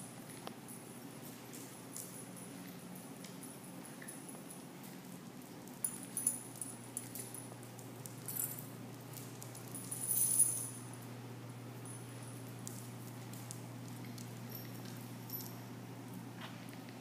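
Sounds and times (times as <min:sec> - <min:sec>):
steady low hum: 0:00.0 - 0:17.0
dog tags jingling: 0:01.5 - 0:11.0, 0:11.8 - 0:15.8.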